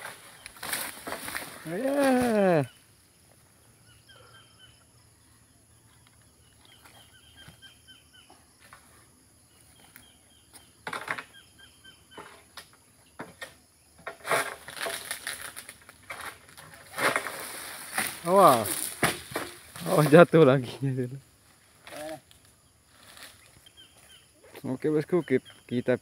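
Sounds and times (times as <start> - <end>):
leaflets thrashing and rustling: 0.0 - 2.6, 14.4 - 20.3
palm fronds crackling and rustling: 0.0 - 3.5, 5.3 - 11.4, 12.0 - 25.3
faint bird chirps: 1.6 - 13.9, 22.0 - 26.0.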